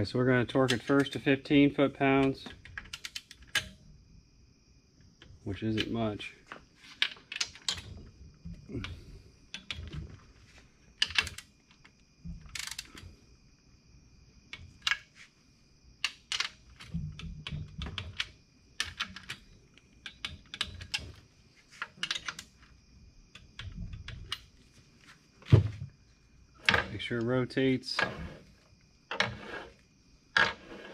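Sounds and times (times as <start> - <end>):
dull knocks of metal parts: 16.0 - 22.5, 26.6 - 27.1.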